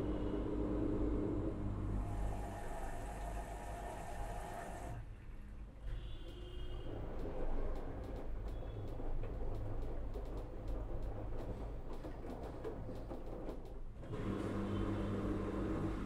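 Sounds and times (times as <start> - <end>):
washing machine hum: 0.0 - 5.0, 6.4 - 16.0
washing machine churning and sloshing: 6.4 - 16.0.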